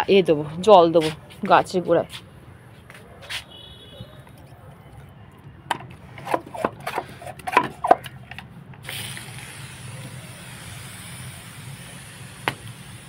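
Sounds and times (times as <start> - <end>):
handling clicks and knocks: 4.2 - 8.8
water spraying onto leaves: 8.8 - 13.0.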